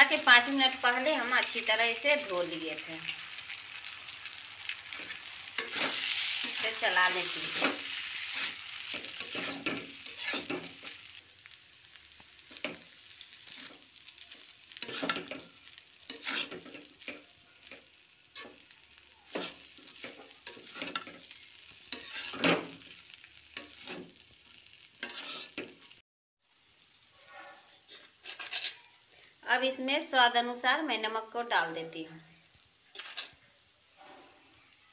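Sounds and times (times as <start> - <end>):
spatula scraping metal pan: 4.8 - 11.0, 14.7 - 15.5, 16.1 - 17.2, 19.3 - 21.3, 21.9 - 22.7, 25.0 - 25.7, 27.8 - 29.0, 32.9 - 33.4.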